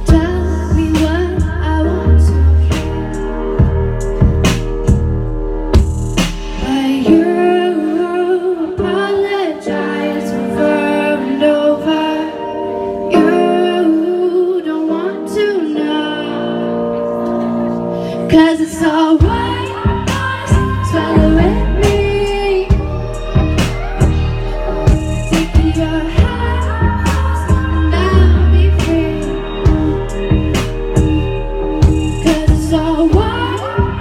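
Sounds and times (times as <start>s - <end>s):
woman singing into a microphone: 0.0s - 5.0s, 6.6s - 34.0s
deep bass and beat: 0.0s - 6.9s, 19.2s - 34.0s
electric guitar: 0.0s - 34.0s.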